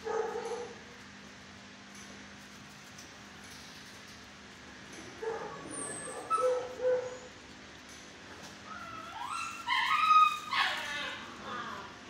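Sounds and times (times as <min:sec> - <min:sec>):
dog whining and yipping: 0:05.5 - 0:07.3, 0:08.6 - 0:11.9.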